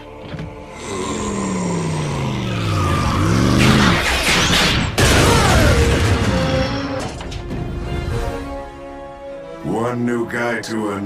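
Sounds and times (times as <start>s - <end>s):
dramatic music: 0.0s - 11.0s.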